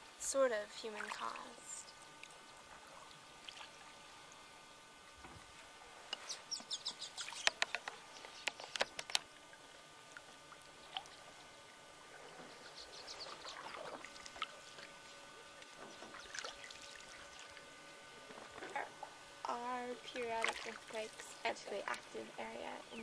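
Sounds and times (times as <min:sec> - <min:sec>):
sharp clicks: 0:07.3 - 0:09.2.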